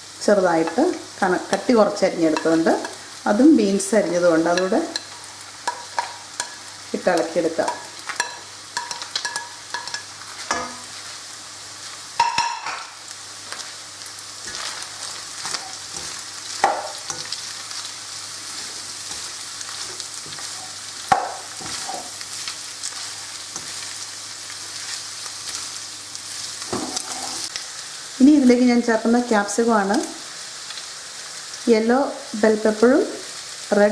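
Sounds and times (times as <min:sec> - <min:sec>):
vegetables sizzling in a wok: 0:00.0 - 0:33.9
spatula scraping and tapping pan: 0:04.5 - 0:06.6, 0:07.6 - 0:10.9, 0:14.4 - 0:17.4, 0:18.6 - 0:22.2, 0:26.7 - 0:27.5.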